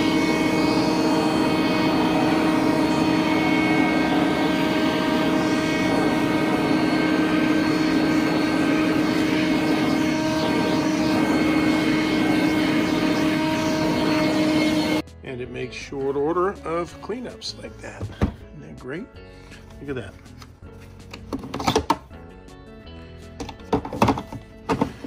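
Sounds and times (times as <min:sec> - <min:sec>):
cordless vacuum whining: 0:00.0 - 0:15.0.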